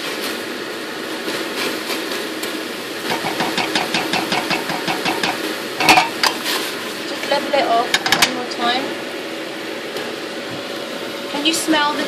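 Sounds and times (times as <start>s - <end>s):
steady background noise: 2.7s - 10.5s
spatula scraping saucepan: 3.1s - 6.4s.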